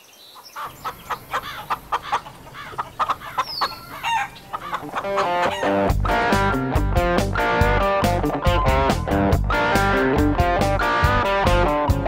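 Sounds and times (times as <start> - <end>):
hens clucking: 0.4 - 6.6.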